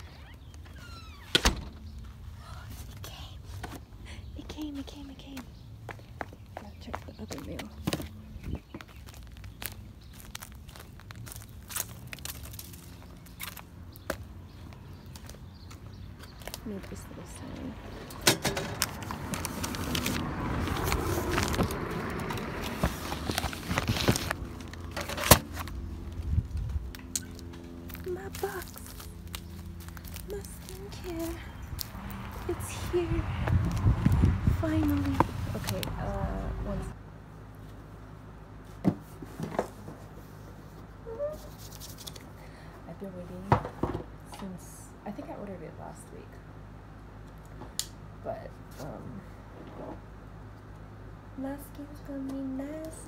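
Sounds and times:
paper and packaging rustling: 18.8s - 25.8s.

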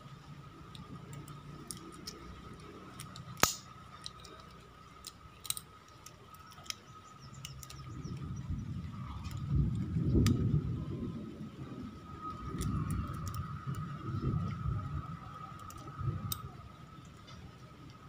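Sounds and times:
small tools and parts clicking: 0.7s - 8.2s, 12.3s - 13.9s, 15.5s - 16.5s.

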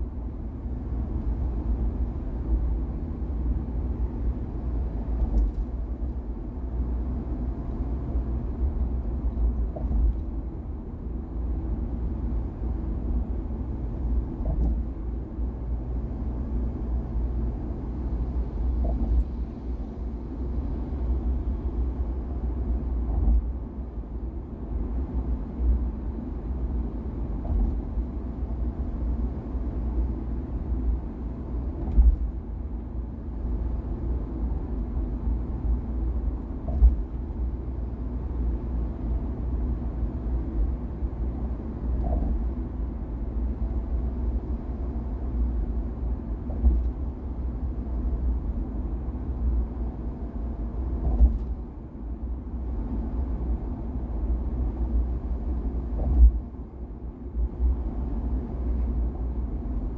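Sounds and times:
car road rumble: 0.0s - 59.9s
short thumps: 36.6s - 37.1s, 51.0s - 51.6s.

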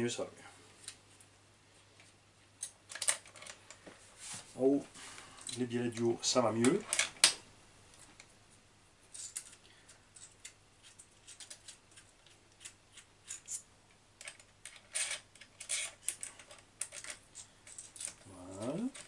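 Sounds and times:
small metal parts clicking: 9.1s - 19.0s.

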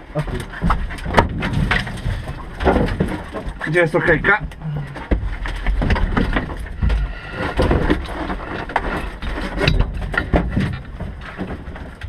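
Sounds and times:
low rumble: 0.0s - 12.0s
knocks and scrapes in car cabin: 5.0s - 12.0s.

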